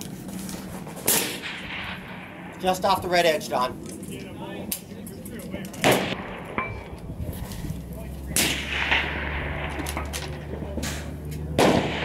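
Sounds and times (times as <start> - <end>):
rifle shot with echo: 1.1 - 2.9, 5.8 - 7.0, 8.3 - 12.0.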